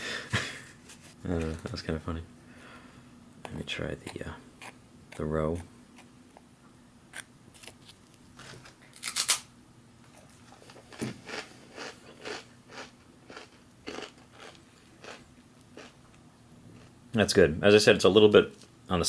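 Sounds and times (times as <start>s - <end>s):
crunchy chewing: 10.2s - 16.9s
crispbread crunch: 10.6s - 15.2s.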